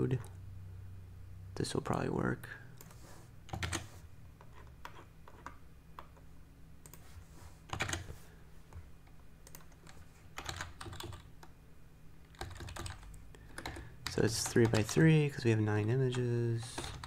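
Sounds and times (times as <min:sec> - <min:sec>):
computer keyboard typing: 0:02.8 - 0:06.2, 0:07.7 - 0:08.1, 0:09.4 - 0:11.5, 0:12.2 - 0:15.1, 0:16.0 - 0:17.0.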